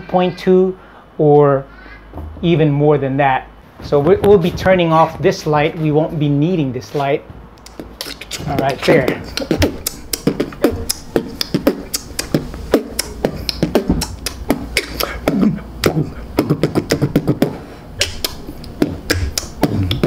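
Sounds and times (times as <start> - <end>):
beatboxing clicks and hits: 7.6 - 20.0.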